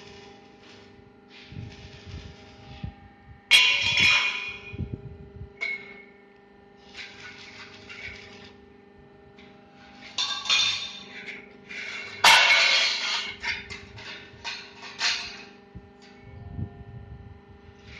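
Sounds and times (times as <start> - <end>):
steady hum: 0.0 - 17.9
steel profiles clattering: 3.5 - 4.8, 5.6 - 6.1, 9.3 - 16.2.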